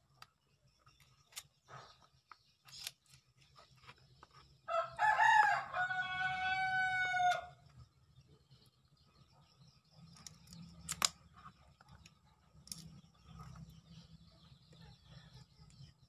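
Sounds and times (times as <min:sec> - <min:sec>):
rooster crowing: 0:04.7 - 0:07.6.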